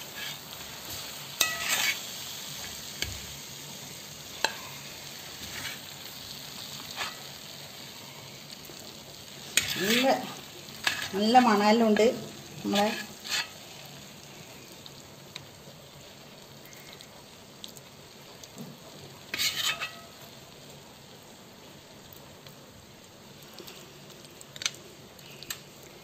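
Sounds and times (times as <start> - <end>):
food sizzling in a pot: 0.0 - 26.0
spoon scraping a pot: 1.4 - 2.1, 9.5 - 11.3, 12.7 - 13.6, 19.3 - 20.1.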